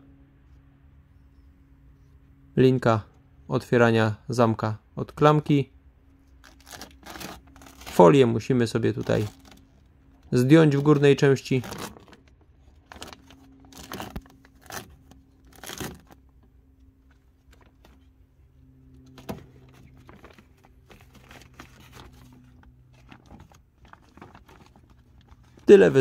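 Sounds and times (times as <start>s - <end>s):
plastic foil crinkling: 6.4s - 16.3s, 19.7s - 26.0s.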